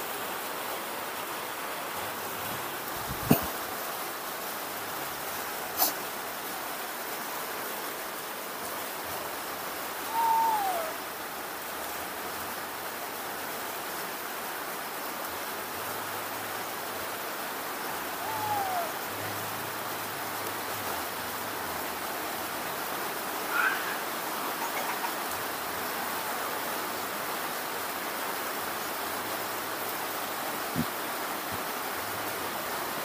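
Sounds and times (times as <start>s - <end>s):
rain falling: 0.0s - 33.0s
baby monkey coo calls: 10.1s - 11.0s, 18.2s - 19.0s, 23.4s - 25.3s.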